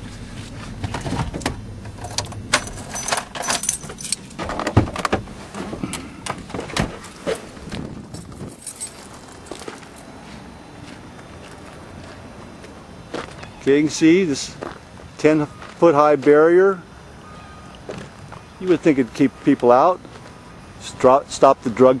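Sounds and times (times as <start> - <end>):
clicks rattles and knocks: 0.9 - 7.4.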